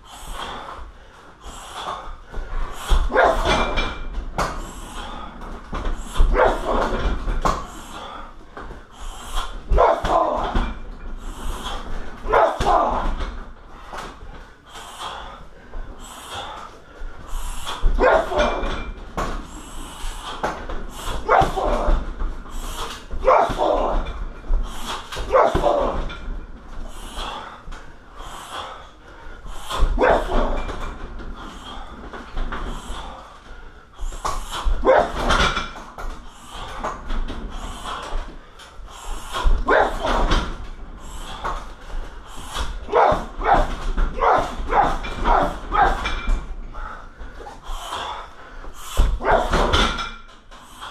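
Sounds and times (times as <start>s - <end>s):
person shouting bark-like cry: 21.3s - 21.7s, 23.2s - 23.7s, 44.2s - 46.0s.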